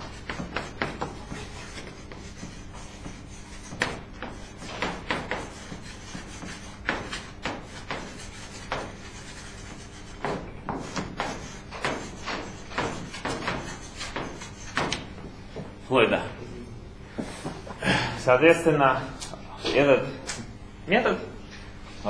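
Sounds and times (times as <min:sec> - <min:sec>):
chalk scratching on blackboard: 0:00.0 - 0:15.1.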